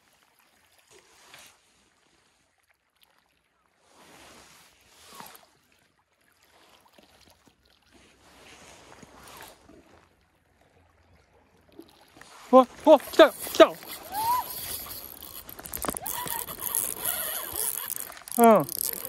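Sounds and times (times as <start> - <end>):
small waves lapping on rocks: 0.0 - 19.0.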